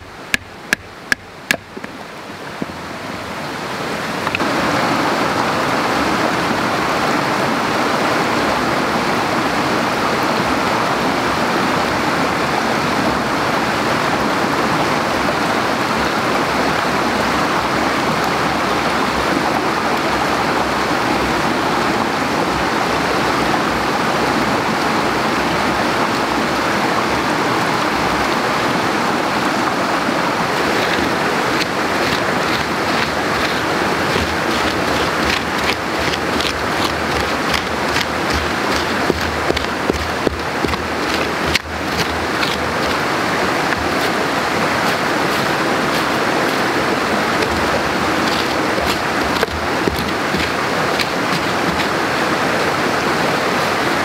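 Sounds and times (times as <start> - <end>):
stream rushing: 0.0 - 54.0
hatchet knocking through kindling: 0.3 - 1.9, 30.8 - 43.1, 43.7 - 44.2, 47.3 - 52.0.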